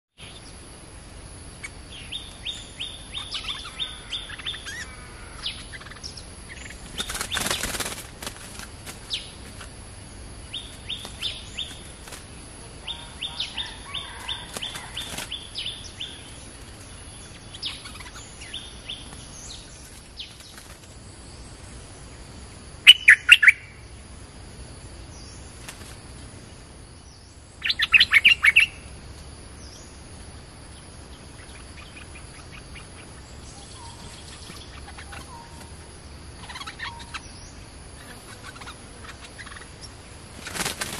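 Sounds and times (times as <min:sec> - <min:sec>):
harsh chattering bird notes: 0:02.8 - 0:09.7, 0:31.4 - 0:37.4.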